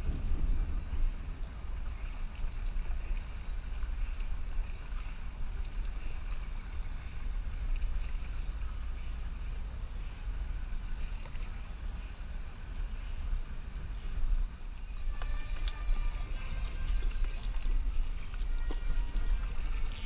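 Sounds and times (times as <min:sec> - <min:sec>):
wind rumble on microphone: 0:00.0 - 0:20.0
water dripping from paddle: 0:01.3 - 0:09.5, 0:14.7 - 0:20.0
kayak paddle splashing in water: 0:14.8 - 0:20.0.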